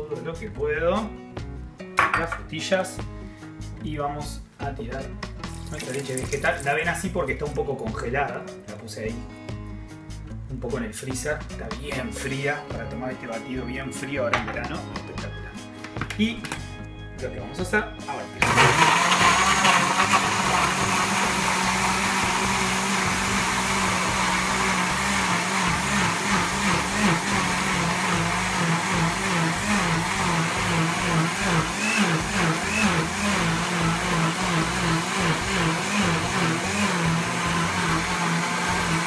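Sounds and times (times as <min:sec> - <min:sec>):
blender motor running: 0:18.4 - 0:39.0.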